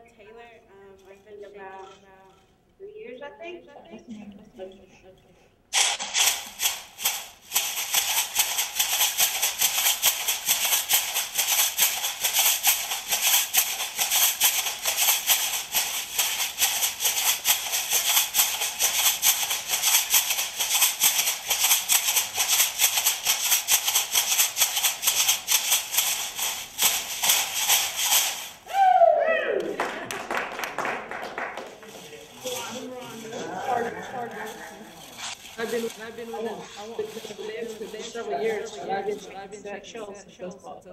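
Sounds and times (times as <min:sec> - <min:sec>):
leg rattles shaking: 0:06.0 - 0:28.6, 0:31.7 - 0:39.4.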